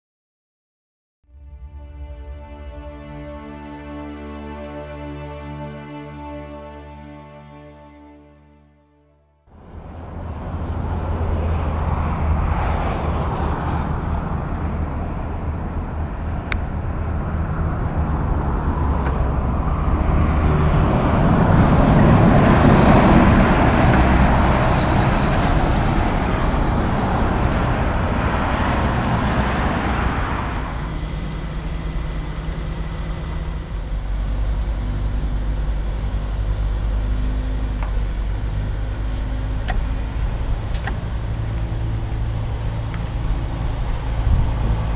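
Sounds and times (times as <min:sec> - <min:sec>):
truck driving past: 0:01.3 - 0:08.3, 0:09.5 - 0:44.9
low engine rumble: 0:09.5 - 0:44.9.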